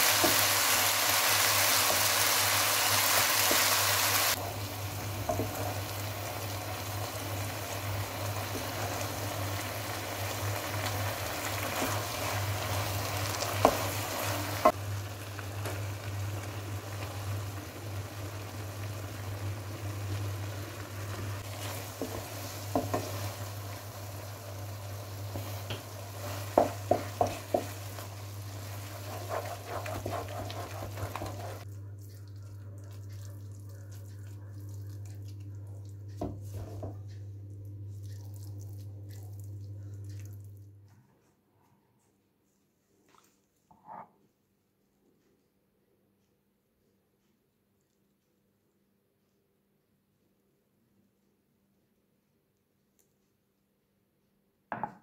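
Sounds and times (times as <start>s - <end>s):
rice sizzling in a pan: 0.0s - 31.7s
wooden spoon stirring rice: 21.2s - 37.2s
spoon knocking against pan: 26.5s - 27.8s, 54.7s - 55.0s.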